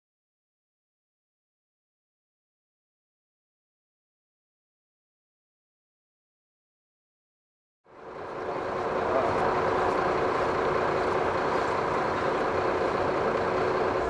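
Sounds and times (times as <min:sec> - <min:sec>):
coach engine idling: 0:07.9 - 0:14.0.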